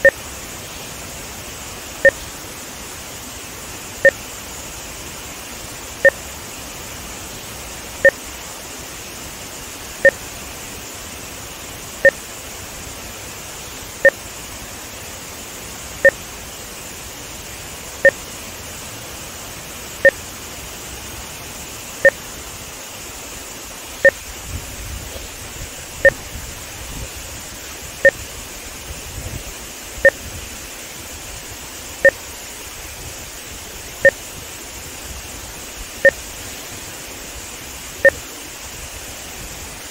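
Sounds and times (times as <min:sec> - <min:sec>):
water rushing through spillway: 0:00.0 - 0:39.9.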